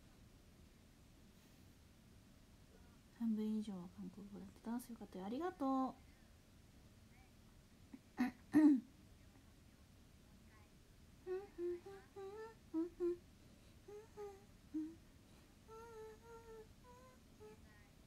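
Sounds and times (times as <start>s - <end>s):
woman humming: 8.0s - 8.9s, 11.2s - 13.2s, 13.8s - 17.9s.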